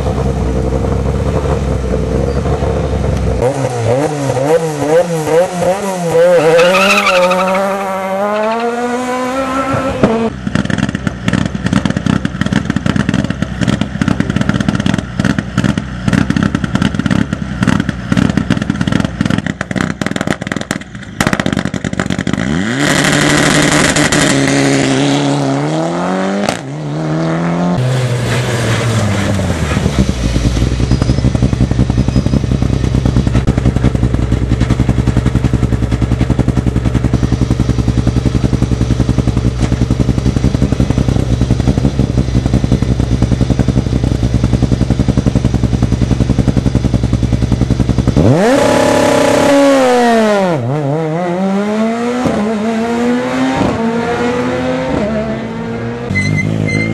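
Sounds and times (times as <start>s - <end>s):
rally car engine idling: 0.0s - 3.4s, 29.8s - 48.4s
rally car engine revving: 0.0s - 56.9s.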